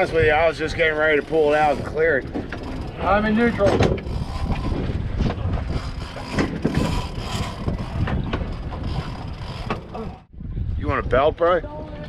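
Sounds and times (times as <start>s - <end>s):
boat engines idling: 0.0s - 10.3s
fishing reel clicking and ratcheting: 1.0s - 4.9s, 5.7s - 10.0s.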